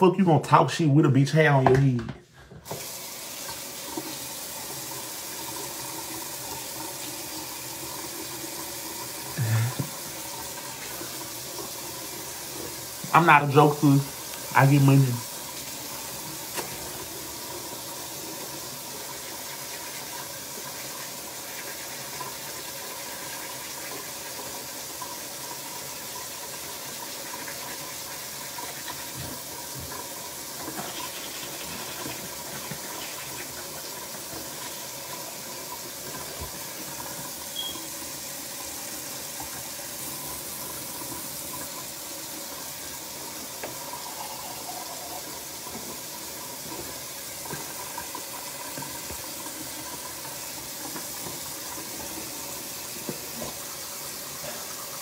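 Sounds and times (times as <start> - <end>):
water running from tap: 2.6 - 55.0.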